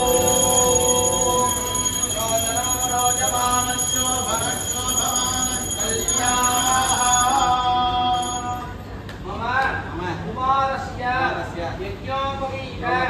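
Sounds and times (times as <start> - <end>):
hand bell ringing: 0.0 - 8.8.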